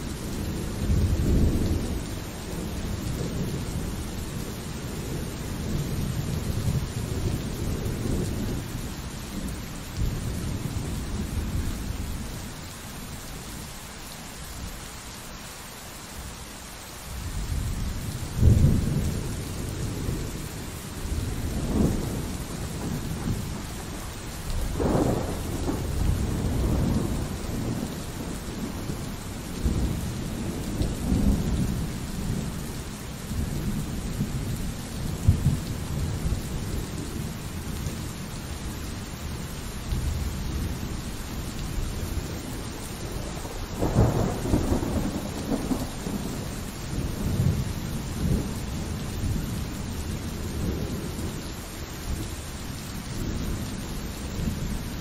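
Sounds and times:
pouring rain: 0.0s - 55.0s
rolling thunder: 17.3s - 38.0s, 41.9s - 51.3s.

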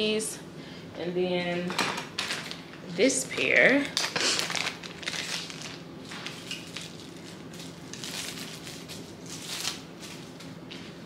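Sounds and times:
packaging crinkling: 2.2s - 2.6s, 3.8s - 10.5s.

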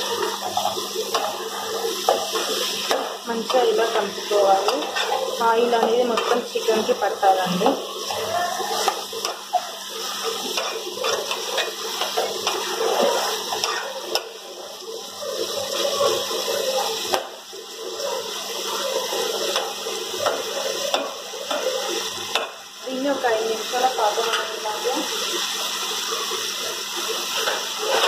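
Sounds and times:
spoon stirring in pot: 0.0s - 17.3s
chicken sizzling in hot oil: 0.0s - 28.0s.

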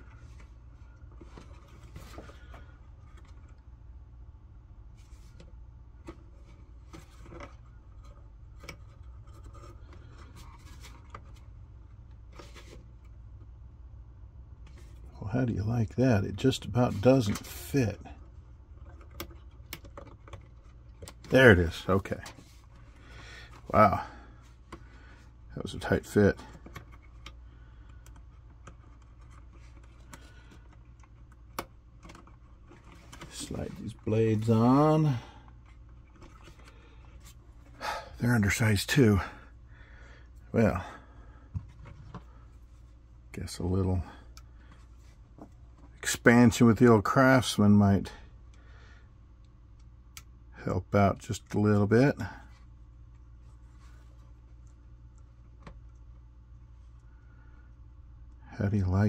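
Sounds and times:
steady low hum: 0.0s - 59.0s
hands handling plastic parts: 4.9s - 13.5s, 16.8s - 37.8s.

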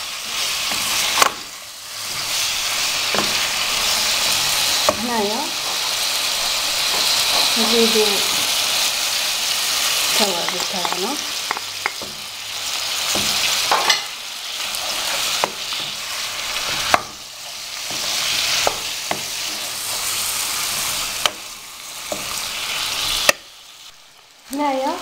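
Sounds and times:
food sizzling in oil: 0.0s - 25.0s
wooden spoon knocking pan: 10.2s - 12.2s.

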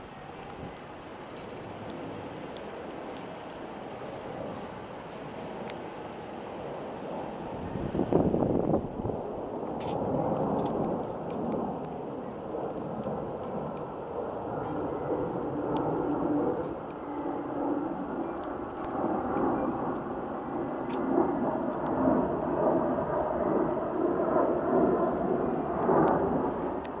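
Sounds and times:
jet airliner rumble overhead: 0.0s - 27.0s.

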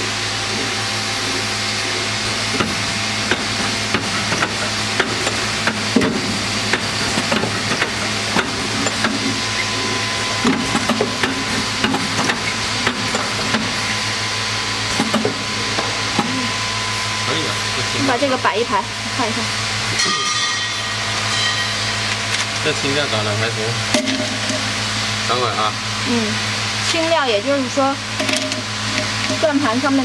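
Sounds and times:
machine humming: 0.0s - 30.0s
pneumatic clicks and clacks: 1.8s - 14.0s, 14.9s - 16.4s.

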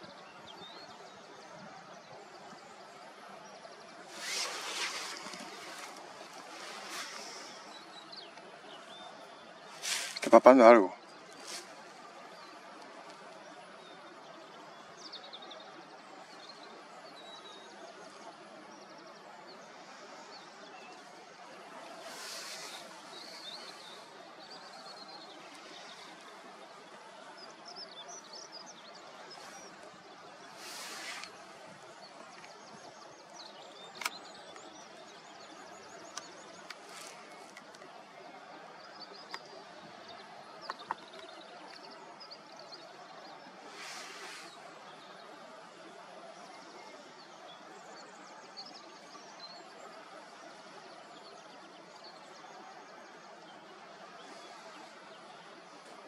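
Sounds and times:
small birds chirping and twittering: 0.0s - 56.0s
steady outdoor hiss: 0.0s - 56.0s.

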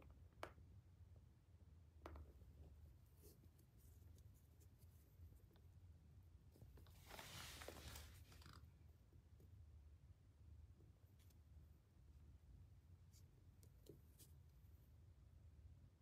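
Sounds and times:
low room hum: 0.0s - 16.0s
soft scratchy rustle: 6.5s - 8.8s.

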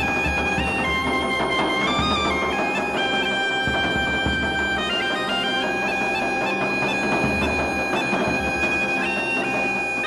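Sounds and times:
bagpipe music: 0.0s - 10.0s.

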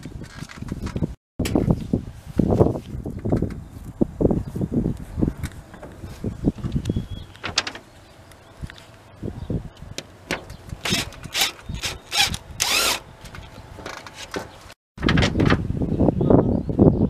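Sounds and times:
impact driver driving screws: 10.8s - 13.0s.

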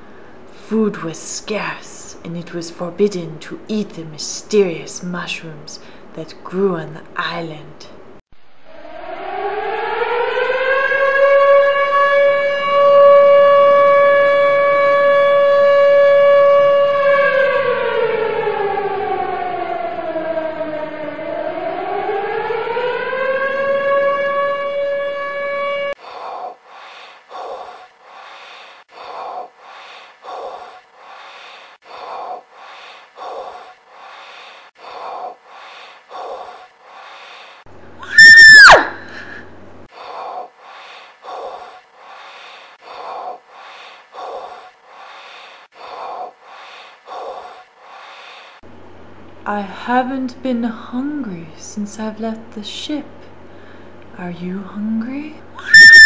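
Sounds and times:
loud tone swooping down: 8.4s - 26.0s
siren-like winding tone: 8.6s - 26.0s, 38.0s - 38.8s, 55.6s - 56.0s.

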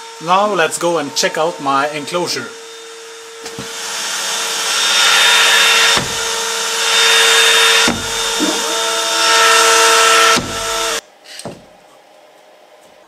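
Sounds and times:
router milling wood: 0.0s - 11.0s
dust extraction suction: 3.7s - 11.0s.

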